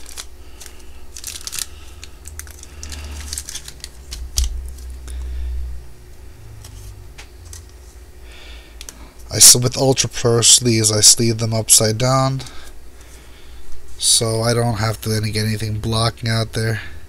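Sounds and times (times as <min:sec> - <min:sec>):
cards sliding into plastic sleeves: 0:00.0 - 0:05.3, 0:06.6 - 0:08.0.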